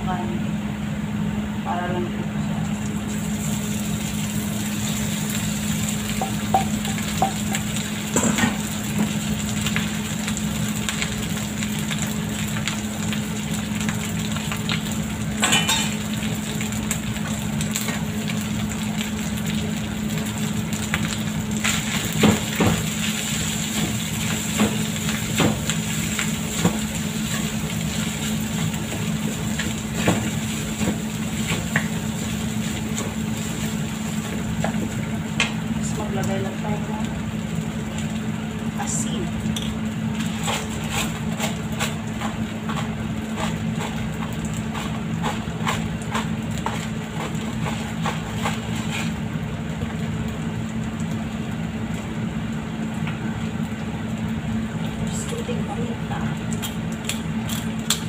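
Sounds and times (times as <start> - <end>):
rice sizzling in a wok: 2.7 - 58.0
spatula scraping and knocking pan: 40.2 - 49.2.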